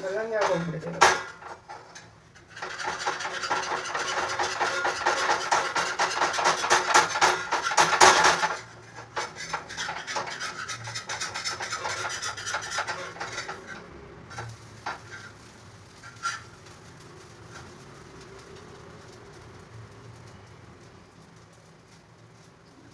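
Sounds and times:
metal spatula scraping griddle: 0:00.0 - 0:17.8.

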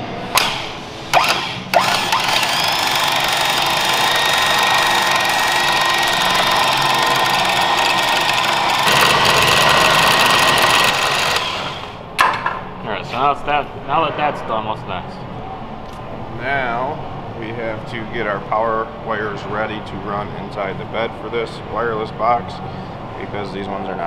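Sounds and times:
electric winch whining: 0:01.1 - 0:12.0.

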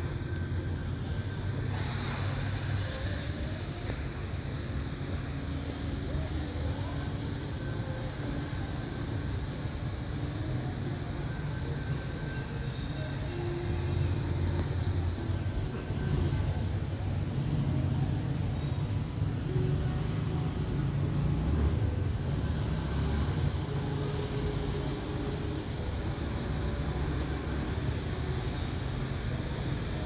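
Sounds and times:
high-pitched insect drone: 0:00.0 - 0:30.0.

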